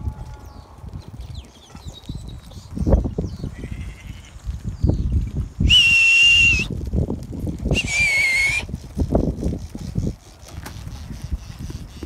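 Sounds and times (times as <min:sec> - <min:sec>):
person whistling shrilly: 0:05.6 - 0:06.7, 0:07.7 - 0:08.7.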